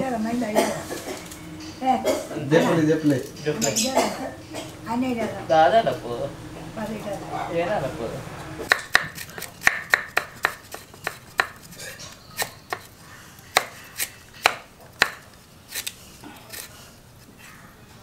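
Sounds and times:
knife chopping on wooden block: 8.7 - 11.6, 14.4 - 15.2.

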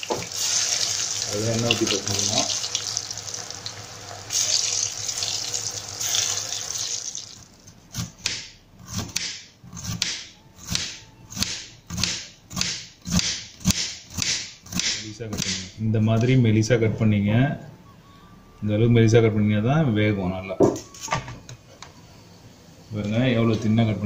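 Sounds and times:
food frying in hot oil: 0.0 - 7.6
knife chopping on wooden board: 8.0 - 15.7.

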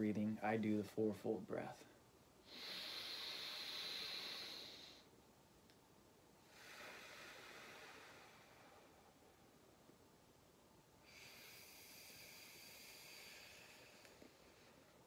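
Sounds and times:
man inhaling deeply: 2.5 - 5.1, 6.5 - 9.0, 11.0 - 14.8.

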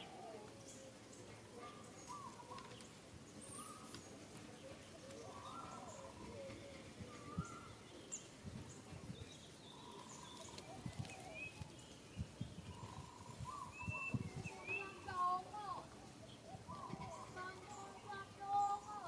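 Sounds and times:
faint outdoor ambience: 0.0 - 19.0
bird chirps: 5.2 - 19.0.

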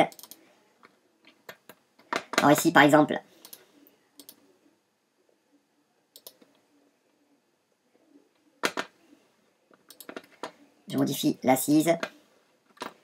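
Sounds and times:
computer mouse clicks: 0.1 - 2.5, 3.4 - 4.4, 6.1 - 6.6, 9.7 - 11.1.

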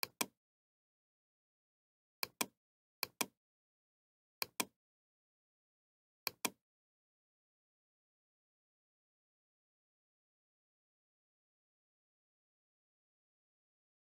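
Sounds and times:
computer mouse clicking: 4.4 - 4.7.

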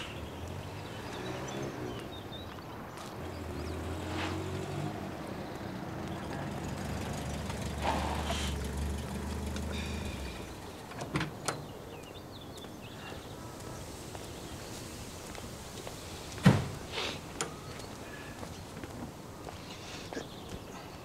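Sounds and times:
faint birdsong: 0.0 - 21.0
car engine idling: 3.2 - 11.0.

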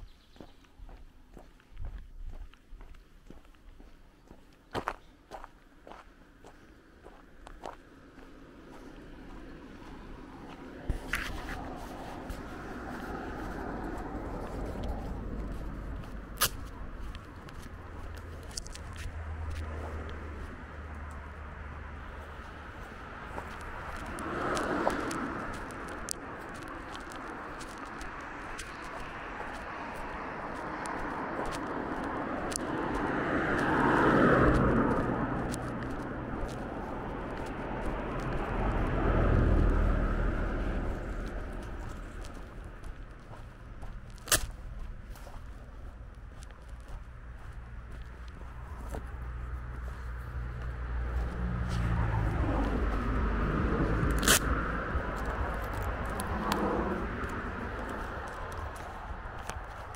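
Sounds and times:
footsteps walking: 0.2 - 59.9
car driving past: 18.6 - 44.0, 47.4 - 59.2
low rumble: 34.3 - 59.5.

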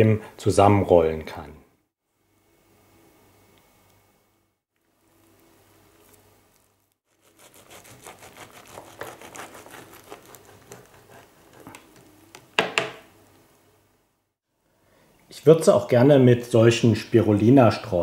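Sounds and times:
knife crunching through crisp wrap: 5.1 - 12.2.

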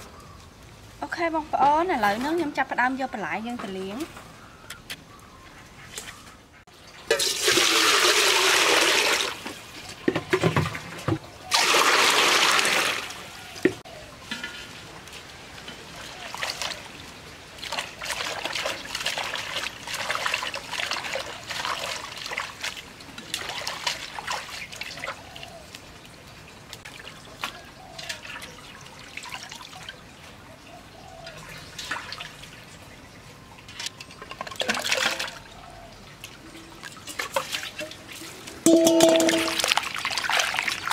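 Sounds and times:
water pouring into metal pot: 6.8 - 9.5, 11.5 - 13.2, 37.0 - 40.9
hands rinsing greens in water: 15.9 - 25.5, 36.2 - 40.9.

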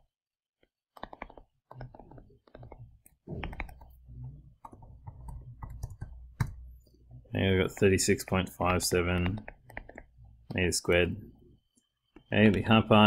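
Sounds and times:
stylus tapping on tablet screen: 0.9 - 6.9, 7.7 - 11.0.

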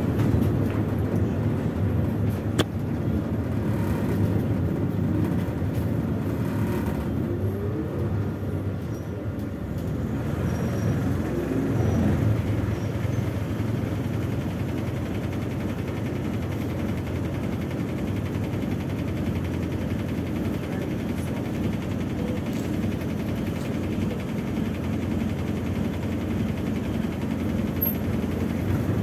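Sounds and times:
road noise: 0.0 - 18.2
bus diesel engine: 0.0 - 29.0.

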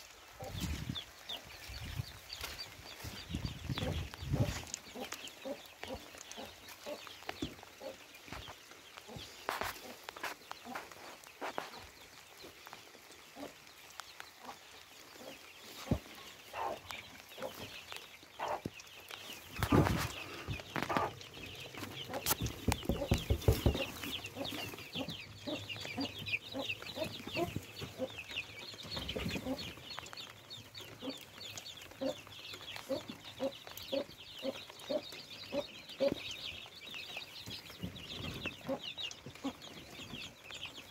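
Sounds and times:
chicks peeping: 0.0 - 40.9
hen clucking: 2.8 - 12.0, 14.3 - 40.5
knocks and rustles: 19.5 - 25.2.

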